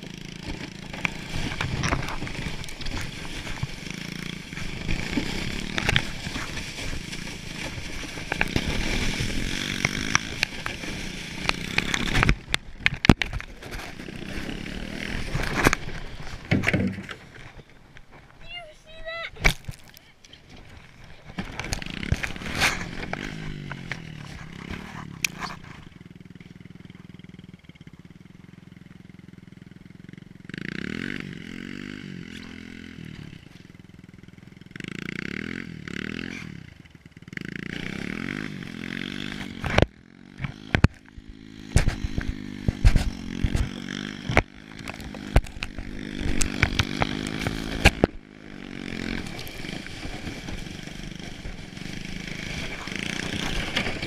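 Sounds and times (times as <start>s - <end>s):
small motorbike engine revving: 0.0s - 17.6s, 21.3s - 54.0s
sled scraping and rattling: 0.0s - 30.2s, 32.2s - 54.0s
sharp knocks and thumps: 15.3s - 17.4s.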